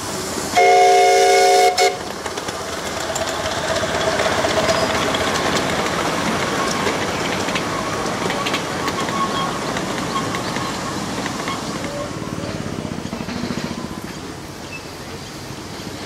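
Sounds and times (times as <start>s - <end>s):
steam locomotive whistle: 0.0s - 2.1s
train running on track: 0.0s - 16.0s.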